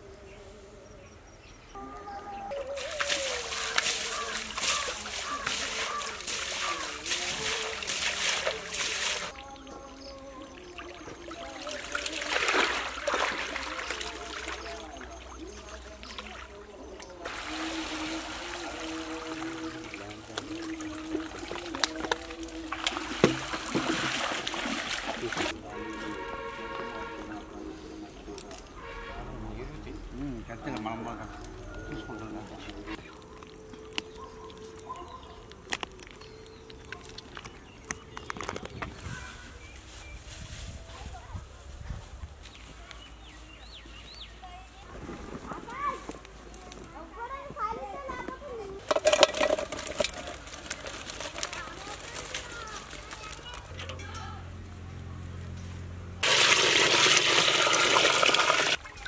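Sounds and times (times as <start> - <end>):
bird calls: 0.4 - 12.1
muddy water splashing and sloshing: 2.6 - 28.8, 31.2 - 39.8, 44.6 - 46.6, 48.8 - 54.1, 56.1 - 59.0
fish flapping in a sack: 2.7 - 9.3, 11.6 - 14.9, 17.2 - 25.6, 49.1 - 53.7.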